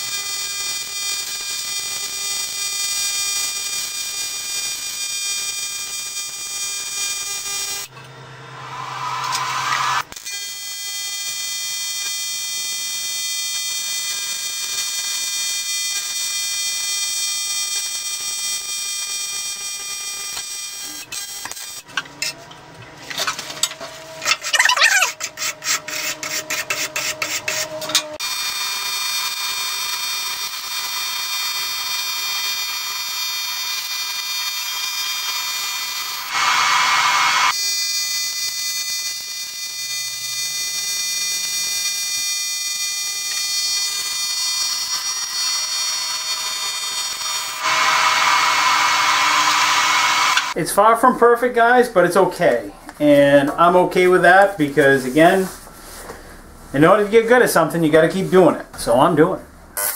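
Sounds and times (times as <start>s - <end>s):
welding arc buzzing: 0.0s - 22.3s, 24.2s - 50.6s
wire brush scrubbing metal: 24.2s - 28.0s.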